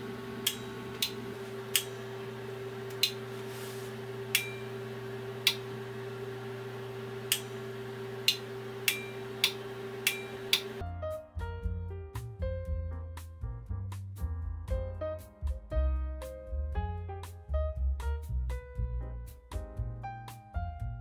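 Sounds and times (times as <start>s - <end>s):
electrical hum: 0.0s - 10.8s
relays clicking: 8.2s - 10.8s.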